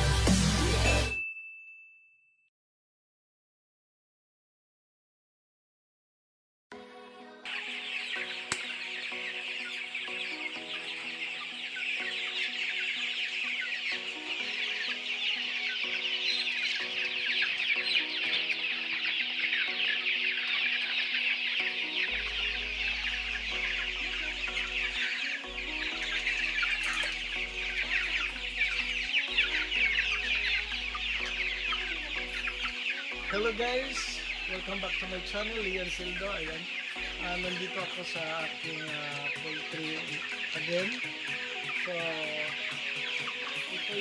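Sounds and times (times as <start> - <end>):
background music with bass: 0.0 - 1.2, 22.1 - 44.0
chickens clucking and peeping: 6.8 - 44.0.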